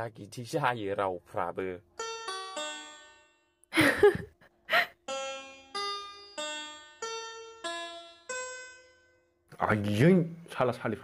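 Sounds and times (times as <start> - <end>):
slow plucked melody: 1.8 - 3.7, 5.0 - 10.3.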